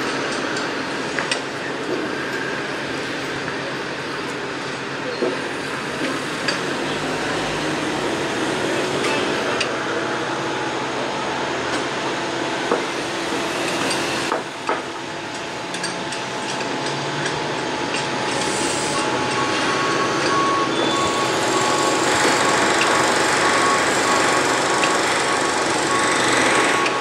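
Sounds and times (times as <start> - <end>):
construction machinery running: 0.0 - 27.0
sharp knocks and bangs: 13.7 - 14.9.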